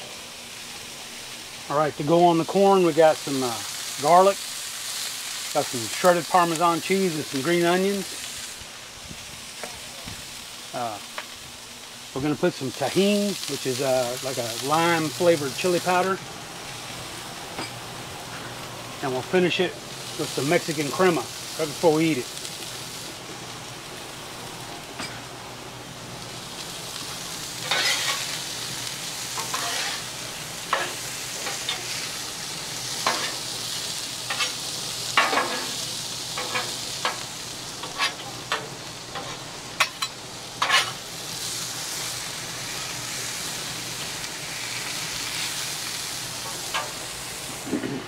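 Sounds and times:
corn sizzling on a griddle: 0:00.0 - 0:48.0
metal spatula scraping steel: 0:27.7 - 0:28.2, 0:29.4 - 0:30.0, 0:37.8 - 0:38.2, 0:39.2 - 0:41.0.

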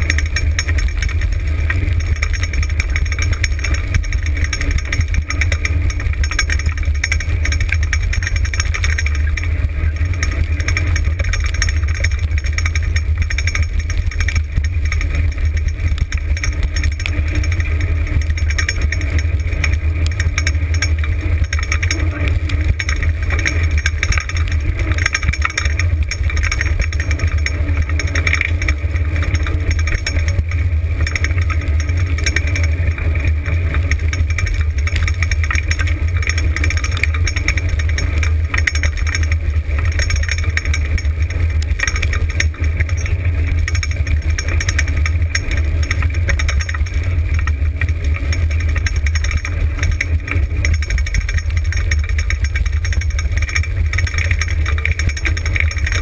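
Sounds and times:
dog rig rattling over dirt: 0:00.0 - 0:56.0
wind rumble on microphone: 0:00.0 - 0:56.0.

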